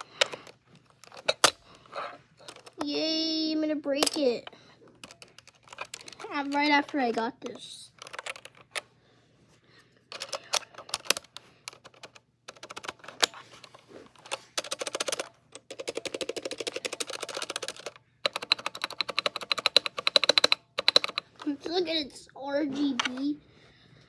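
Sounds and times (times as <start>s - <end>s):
mechanical keyboard typing: 5.0s - 7.0s, 8.0s - 8.8s, 10.1s - 13.3s, 14.2s - 21.5s.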